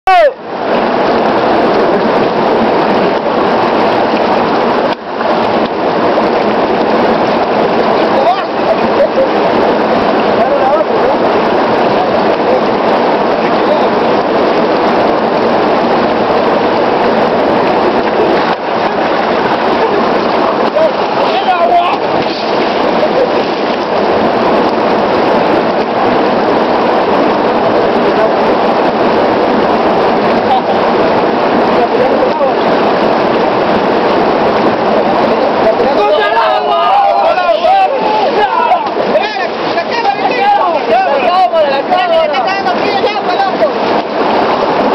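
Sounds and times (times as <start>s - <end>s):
river water rushing: 0.1s - 44.9s.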